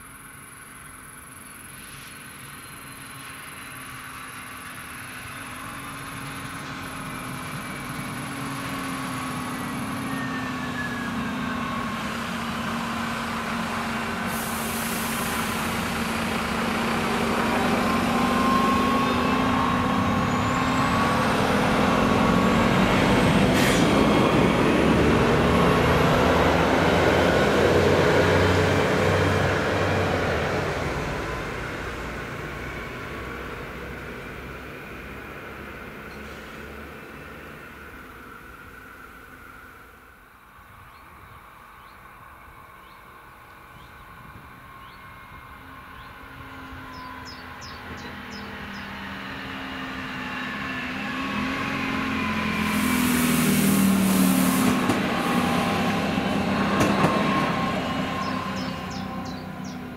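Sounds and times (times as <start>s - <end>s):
diesel railcar passing: 0.0s - 59.9s.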